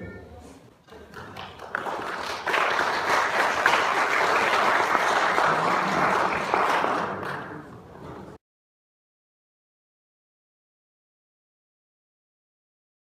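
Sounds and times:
audience applauding: 0.8 - 7.9.

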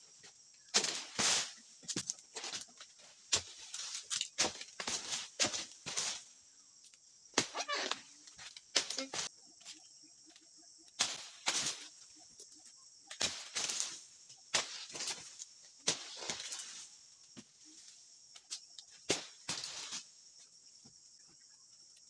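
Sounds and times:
frond rustle: 0.0 - 6.7, 11.0 - 20.6.

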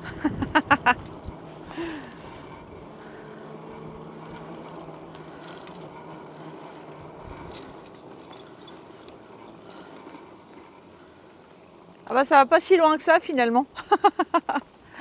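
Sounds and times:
wind noise: 0.0 - 1.5
bicycle rolling on road: 0.0 - 15.0
high-pitched squeal: 8.0 - 9.0.

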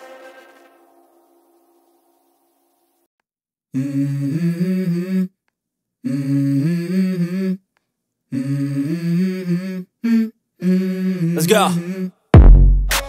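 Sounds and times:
wordless voice humming a melody: 3.7 - 5.4, 6.0 - 7.7, 8.3 - 12.2.

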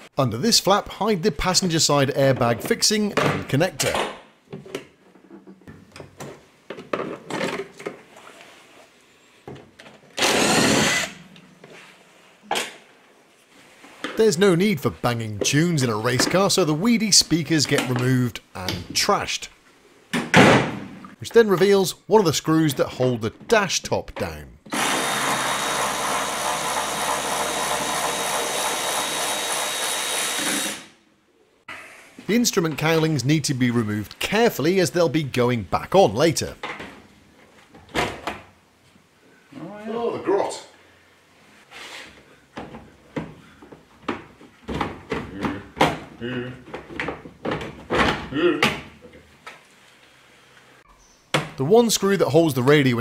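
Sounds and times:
cordless drill running: 10.2 - 11.2, 24.7 - 31.0
power driver spinning: 10.2 - 11.2.

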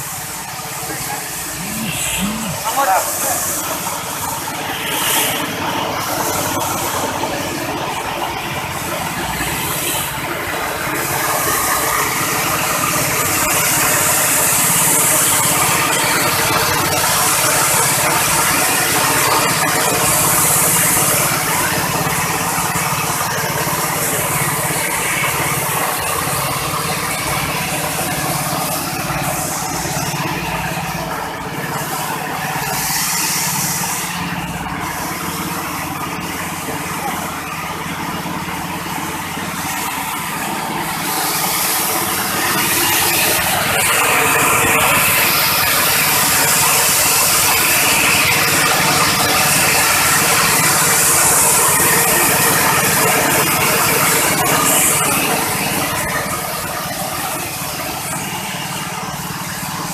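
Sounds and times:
engine drone: 0.0 - 59.9
hiss of beans through machine: 0.0 - 59.9.

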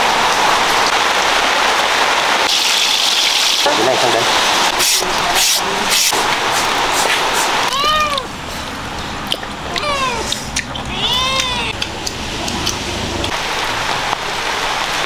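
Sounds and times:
cat meowing: 7.7 - 8.3, 9.7 - 11.8.

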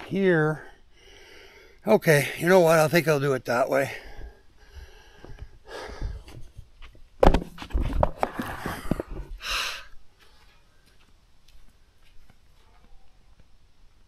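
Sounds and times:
footsteps on dirt: 4.8 - 13.6.

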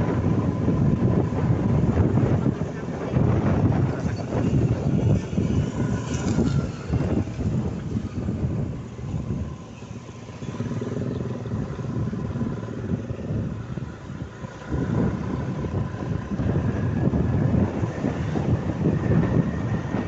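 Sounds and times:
scooter engine running: 0.0 - 20.0
wind rumble on microphone: 0.0 - 20.0.

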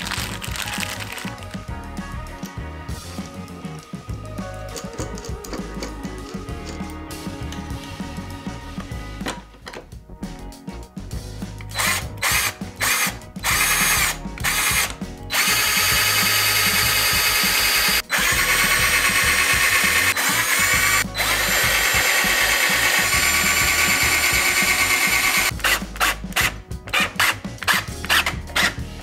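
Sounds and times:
power drill running: 11.7 - 28.7.

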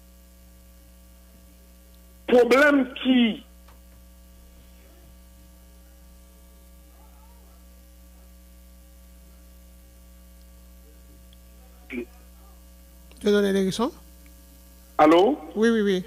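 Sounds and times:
electrical mains hum: 0.0 - 16.0
person speaking: 2.3 - 3.5, 11.6 - 12.6, 15.0 - 16.0
faint murmur: 4.4 - 13.0.

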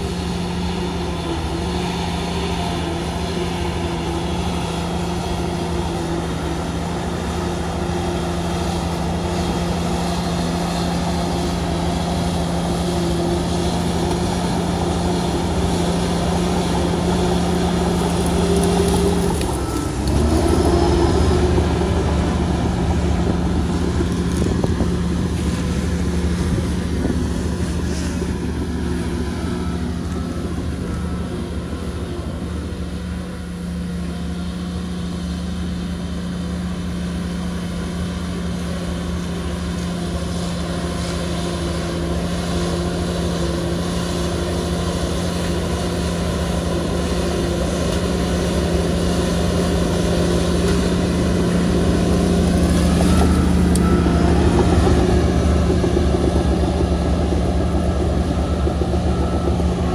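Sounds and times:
bulldozer diesel engine droning: 0.0 - 59.9.

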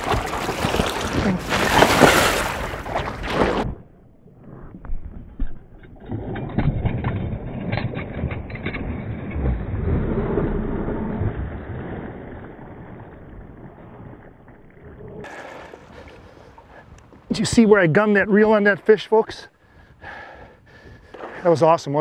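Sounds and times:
fish splashing in water: 0.0 - 3.7.

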